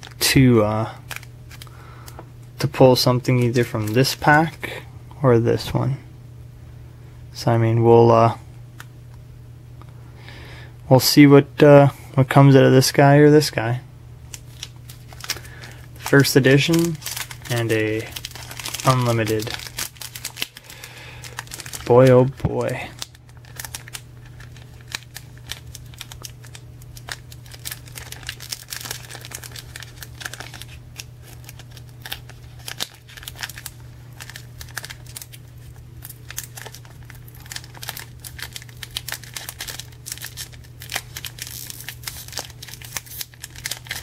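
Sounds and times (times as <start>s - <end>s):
foil wrapper crinkling: 0.0s - 0.3s, 0.9s - 2.2s, 14.3s - 44.0s
steady low hum: 0.0s - 44.0s.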